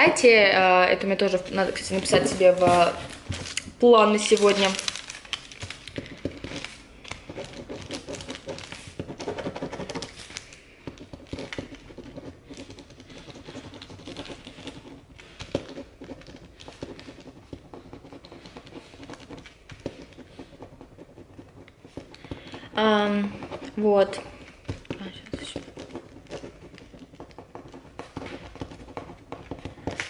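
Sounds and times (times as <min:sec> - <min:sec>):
pen writing on paper: 0:06.0 - 0:30.0.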